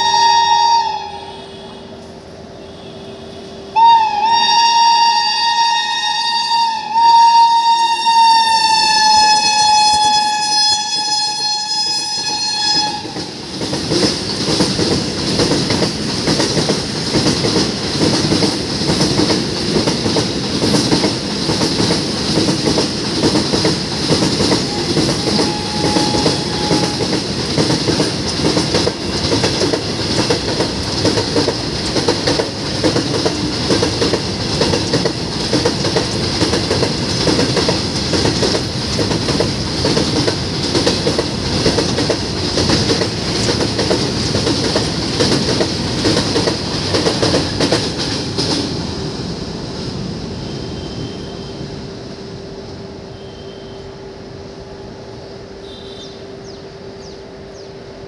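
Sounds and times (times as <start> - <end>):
locomotive horn: 0.0 - 13.3, 24.7 - 27.2, 53.1 - 54.1, 55.6 - 56.3
train wheels rushing on rail: 0.0 - 58.0.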